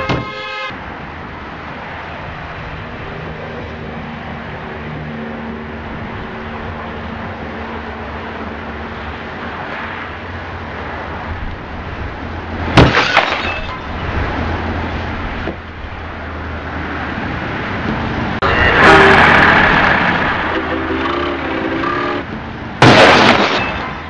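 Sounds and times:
road traffic: 0.0 - 24.0
car crash impact: 12.7 - 13.8, 22.8 - 24.0
breaking glass: 12.8 - 13.8, 22.8 - 24.0
debris clattering: 12.8 - 13.8, 22.8 - 24.0.

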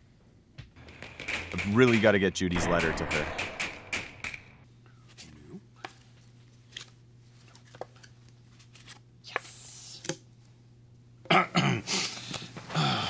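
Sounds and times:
wordless man's voice: 1.7 - 3.5
low hum: 2.6 - 4.6.

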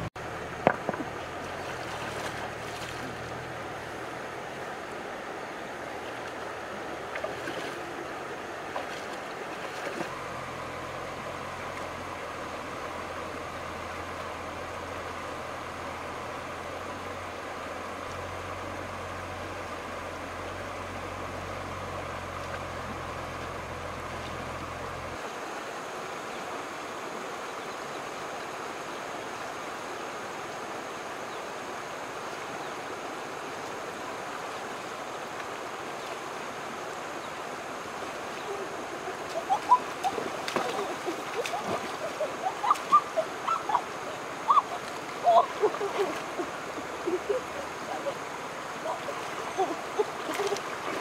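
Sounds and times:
river running over stones: 0.0 - 51.0
hands splashing in water: 39.3 - 43.0.

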